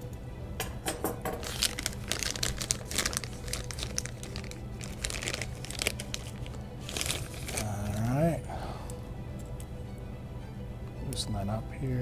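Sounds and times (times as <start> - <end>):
plastic bag crinkling: 1.4 - 8.2.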